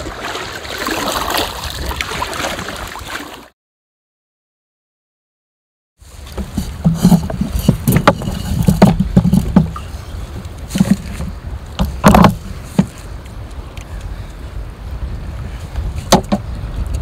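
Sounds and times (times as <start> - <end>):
low wind rumble: 6.0 - 17.0
crab nets knocking against kayak: 6.3 - 9.9, 10.7 - 13.0, 16.1 - 16.6.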